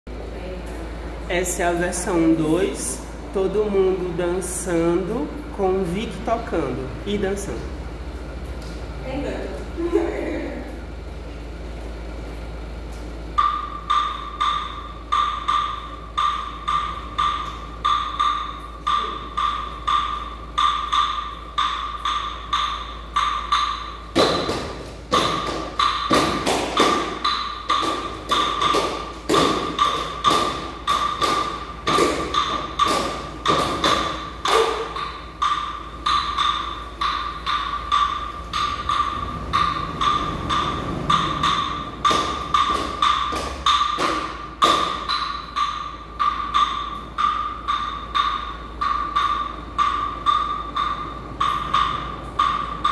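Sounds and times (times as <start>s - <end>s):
wood block struck in a beat: 12.7s - 52.9s.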